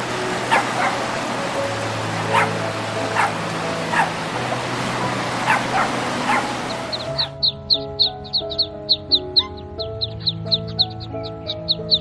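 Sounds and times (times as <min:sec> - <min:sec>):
background music: 0:00.0 - 0:12.0
dog yipping: 0:00.5 - 0:01.0, 0:02.3 - 0:04.1, 0:05.4 - 0:07.4, 0:08.9 - 0:10.3.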